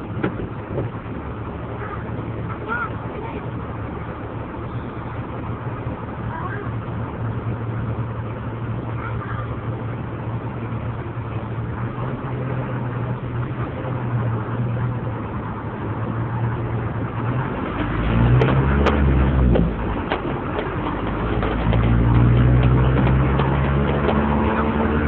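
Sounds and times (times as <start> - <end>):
road and traffic noise: 0.0 - 25.0
vehicle engine humming: 0.0 - 25.0.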